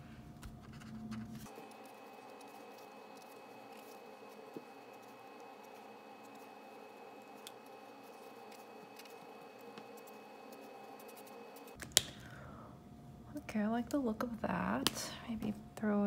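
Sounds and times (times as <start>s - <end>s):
low room hum: 0.0s - 16.0s
marker strokes on paper: 1.5s - 11.8s.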